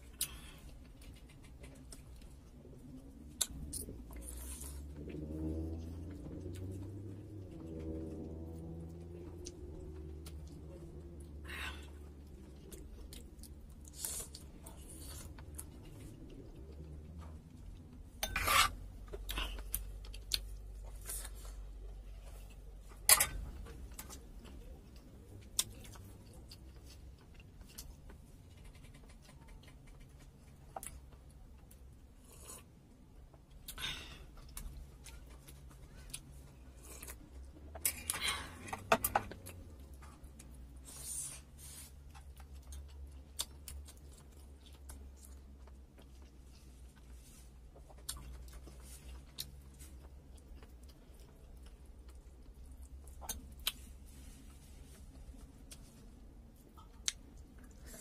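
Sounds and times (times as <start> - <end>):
chewing: 0.0 - 58.0
cutlery scraping a plate: 18.2 - 18.8, 23.1 - 23.5.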